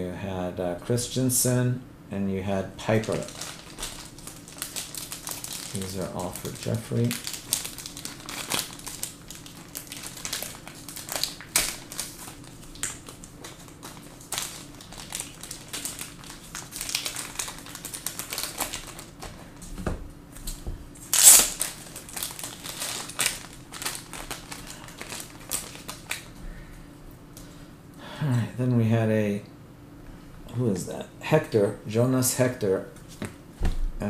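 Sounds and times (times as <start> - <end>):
cards crinkling and rustling: 2.9 - 19.6, 20.4 - 26.3.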